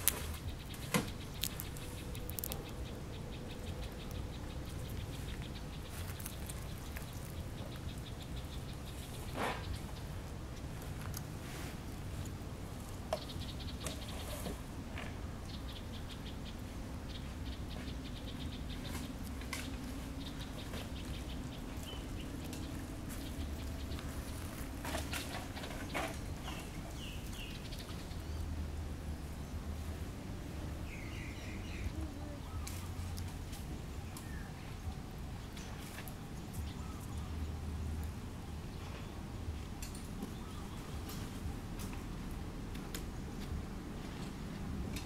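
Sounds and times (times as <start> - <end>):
sharp clicks: 0.0 - 5.6
rapid high-pitched animal ticks: 0.0 - 9.2
steady low hum: 0.0 - 45.0.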